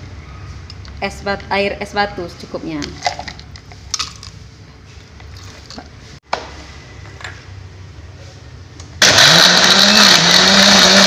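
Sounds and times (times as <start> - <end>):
electric blender running: 9.0 - 11.0.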